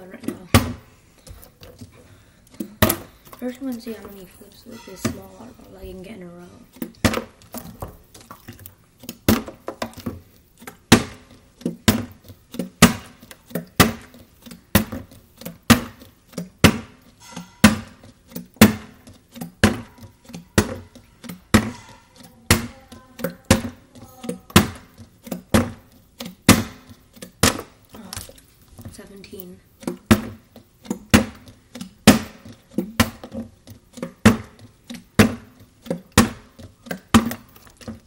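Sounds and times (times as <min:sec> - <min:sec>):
plastic bottle thunking on stone: 0:02.6 - 0:03.4, 0:06.8 - 0:08.5, 0:09.1 - 0:16.0, 0:19.6 - 0:20.0, 0:21.5 - 0:21.9, 0:24.5 - 0:28.9, 0:29.8 - 0:34.6, 0:35.2 - 0:38.0.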